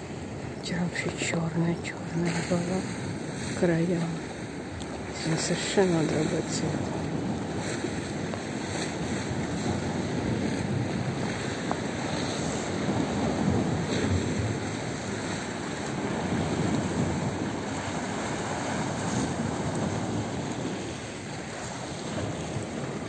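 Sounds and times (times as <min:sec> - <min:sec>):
waves washing against boulders: 0:00.0 - 0:23.0
wind buffeting microphone: 0:00.0 - 0:23.0.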